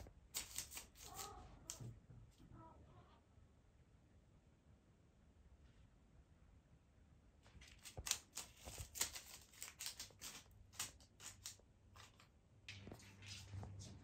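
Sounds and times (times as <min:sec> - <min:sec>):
faint scratching and rustling: 0:07.4 - 0:14.0.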